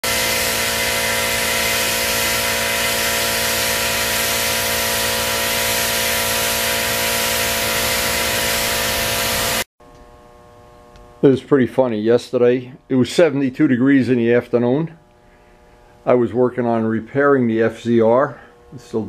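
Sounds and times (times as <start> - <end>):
power tool hissing and whining: 0.0 - 9.7.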